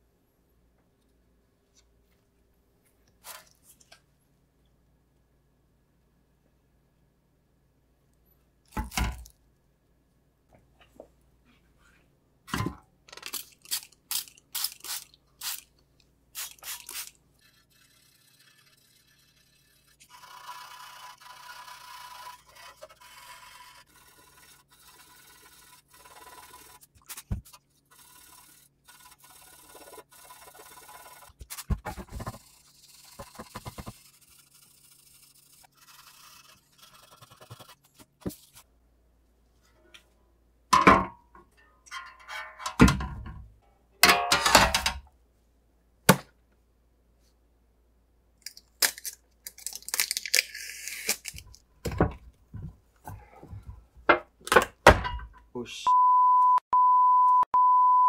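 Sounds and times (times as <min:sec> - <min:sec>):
sandpaper rasping on metal: 0:16.8 - 0:37.9.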